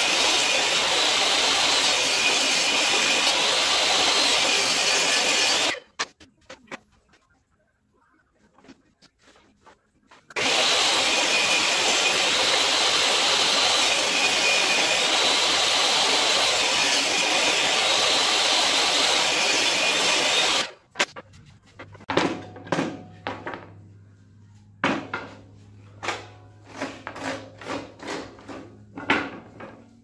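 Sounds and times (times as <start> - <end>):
table saw running: 0.0 - 5.8, 10.4 - 20.8.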